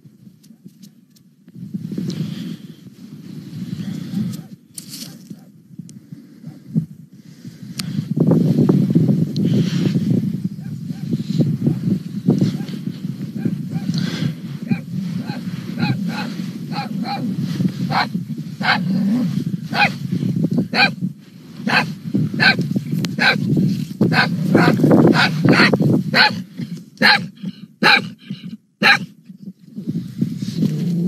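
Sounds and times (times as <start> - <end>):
small dog yapping: 13.4 - 13.9, 14.7 - 17.3, 17.9 - 18.9, 19.7 - 20.0, 20.7 - 21.0, 21.7 - 22.6, 23.2 - 23.4, 24.1 - 26.4, 27.0 - 29.1.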